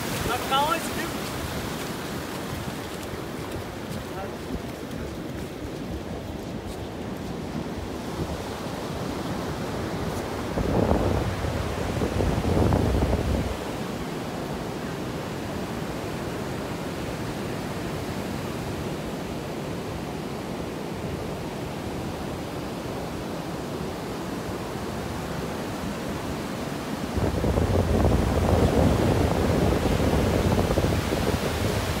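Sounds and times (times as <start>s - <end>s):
wind rumbling on microphone: 0.0s - 14.0s, 27.1s - 32.0s
ocean surf breaking on beach: 0.0s - 32.0s.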